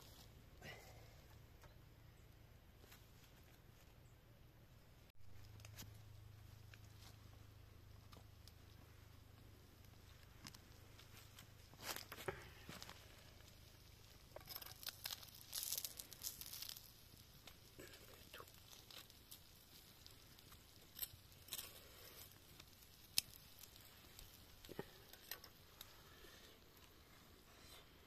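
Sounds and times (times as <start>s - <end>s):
crinkling and rustling: 5.3s - 27.9s.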